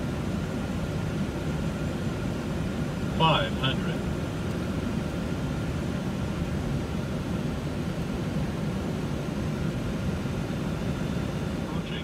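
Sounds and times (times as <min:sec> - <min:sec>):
airliner cabin airflow and engine: 0:00.0 - 0:12.0.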